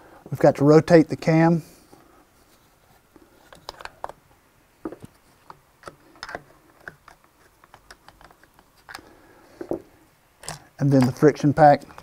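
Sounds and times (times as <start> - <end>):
clicks and taps of handled parts: 4.8 - 11.2.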